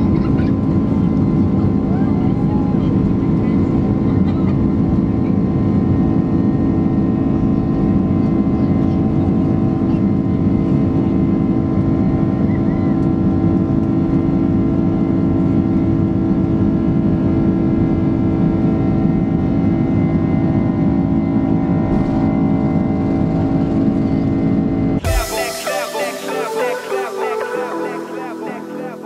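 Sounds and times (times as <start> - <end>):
jet engines droning in cabin: 0.0 - 29.0.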